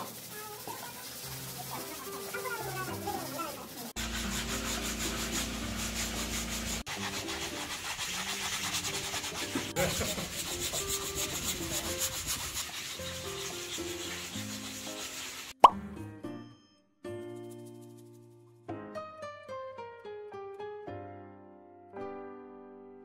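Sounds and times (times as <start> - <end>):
sandpaper scraping wood: 0.0 - 15.6.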